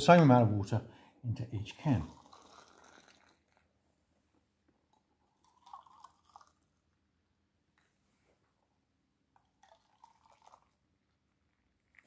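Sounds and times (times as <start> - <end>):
water trickling into metal can: 1.8 - 3.6, 5.4 - 6.6, 9.6 - 10.8.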